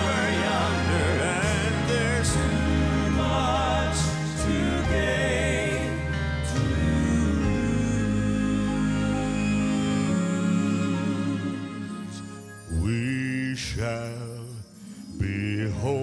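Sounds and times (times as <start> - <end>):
live band accompaniment: 0.0 - 12.6
male vocal quartet singing gospel: 0.0 - 16.0.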